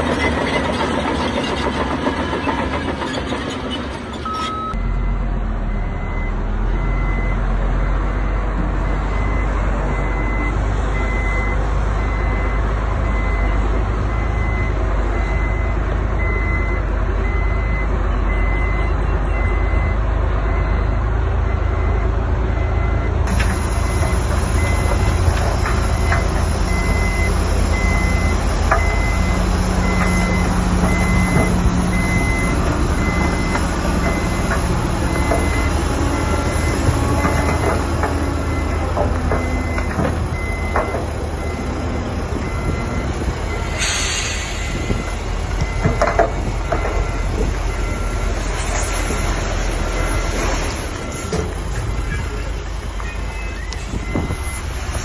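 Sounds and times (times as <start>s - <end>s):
diesel construction machine running: 0.0s - 55.0s
reversing alarm beeping: 4.2s - 52.3s, 53.2s - 54.8s.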